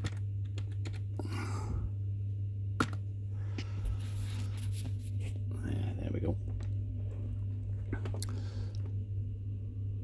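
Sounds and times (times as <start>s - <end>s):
low electrical hum: 0.0s - 10.0s
soft breath: 3.3s - 4.8s, 8.2s - 8.9s.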